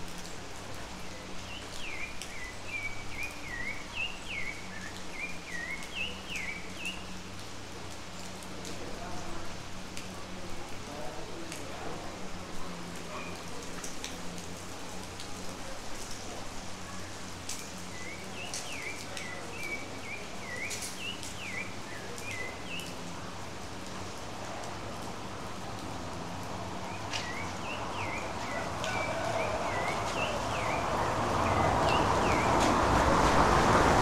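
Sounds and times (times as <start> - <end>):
steady rain falling: 0.0 - 34.0
bird chirping: 29.7 - 32.5.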